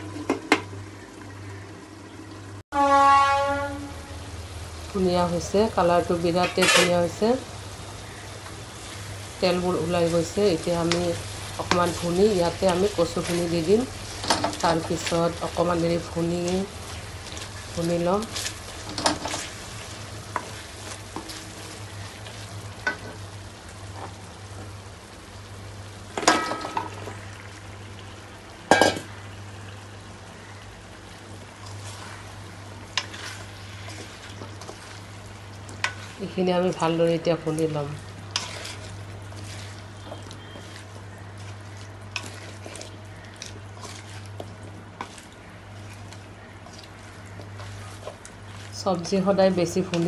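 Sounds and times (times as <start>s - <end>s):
spices sizzling in oil: 2.8s - 50.0s
steady low hum: 3.8s - 23.6s
spatula scraping in pan: 6.2s - 7.4s, 8.0s - 22.4s, 32.9s - 35.1s, 37.8s - 50.0s.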